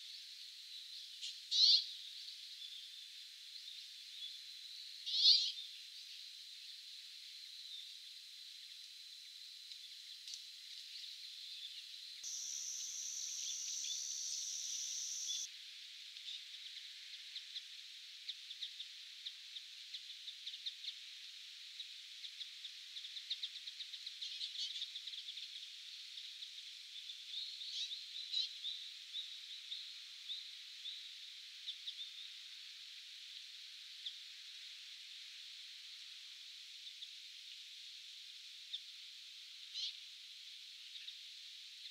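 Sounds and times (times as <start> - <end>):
long wheezy bird note: 12.3 - 15.5.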